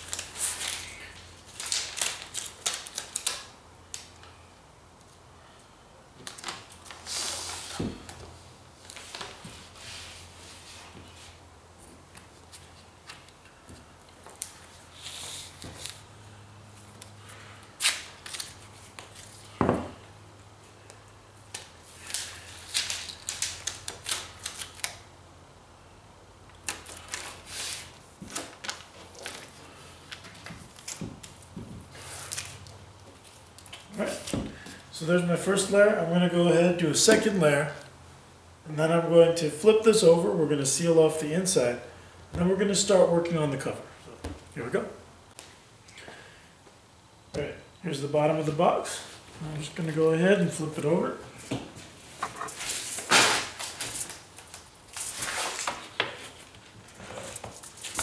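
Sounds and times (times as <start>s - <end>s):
foil tape crinkling: 0.0s - 4.2s, 17.8s - 19.4s, 21.5s - 25.1s, 26.6s - 34.4s, 52.5s - 58.0s.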